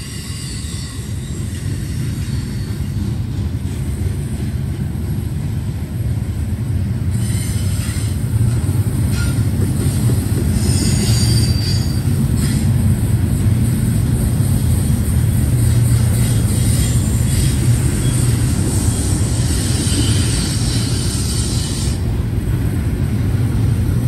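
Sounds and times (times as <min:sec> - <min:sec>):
high-pitched wheel squeal: 0:00.0 - 0:03.0, 0:07.1 - 0:08.2, 0:10.6 - 0:12.7, 0:16.1 - 0:22.0
freight train rumbling past: 0:00.0 - 0:24.0.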